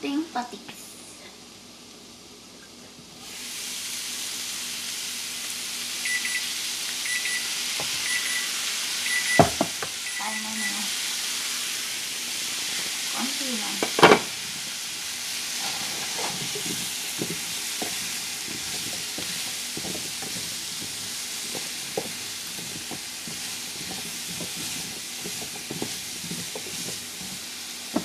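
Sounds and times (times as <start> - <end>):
squash sizzling in a frying pan: 0.0 - 28.0
spatula scraping a pan: 12.4 - 28.0.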